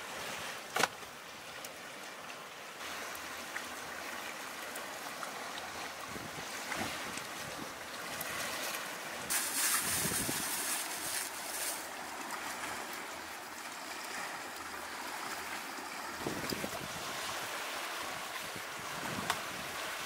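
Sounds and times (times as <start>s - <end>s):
rush of water: 0.0s - 20.0s
sea waves washing: 0.0s - 20.0s
wind on microphone: 6.0s - 7.8s, 9.4s - 10.8s, 16.1s - 20.0s.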